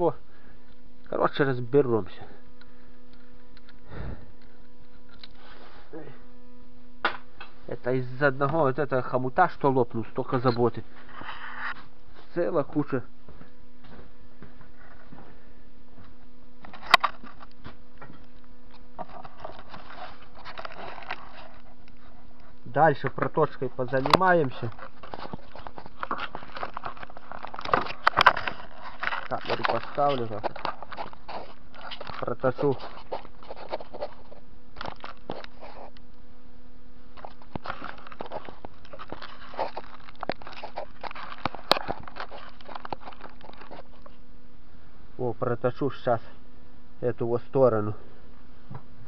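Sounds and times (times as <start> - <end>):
steady low hum: 0.0 - 49.0
rustling and scraping: 4.2 - 6.0, 7.3 - 36.2, 37.1 - 44.3.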